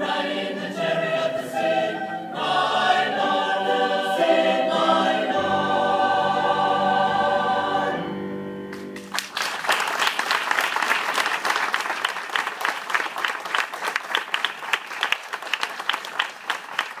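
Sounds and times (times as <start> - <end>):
choir holding a chord: 0.0 - 8.8
audience applause: 9.0 - 17.0.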